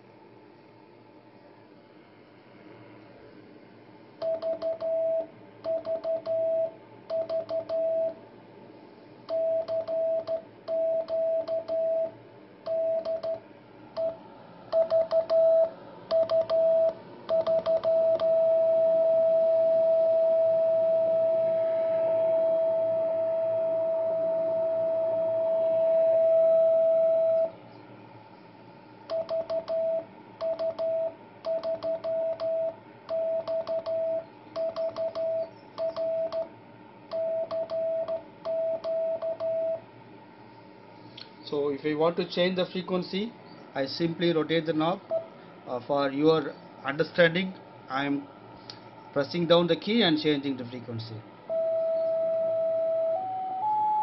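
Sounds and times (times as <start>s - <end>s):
morse code beeps: 4.2s - 8.2s, 9.3s - 12.1s, 12.7s - 13.4s, 14.0s - 21.4s, 29.1s - 36.5s, 37.1s - 39.8s, 51.5s - 54.0s.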